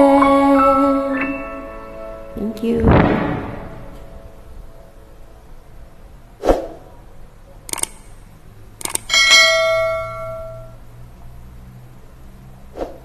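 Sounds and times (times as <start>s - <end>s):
sharp clicks: 7.7s - 8.2s, 8.8s - 9.2s
bell-like ding: 9.1s - 10.8s.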